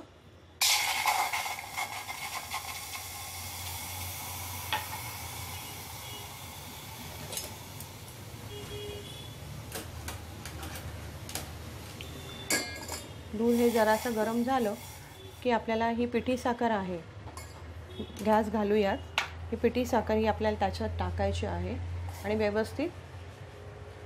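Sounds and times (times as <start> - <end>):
milk sizzling in hot pan: 0.6 - 8.6, 13.3 - 15.7.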